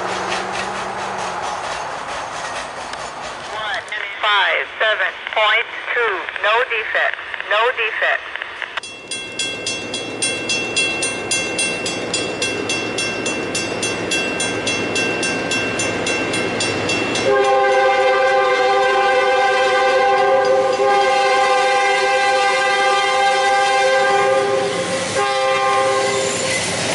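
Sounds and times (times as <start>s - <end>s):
crossing bell ringing: 8.8s - 18.2s, 20.2s - 20.9s
locomotive air horn blast: 17.2s - 26.3s.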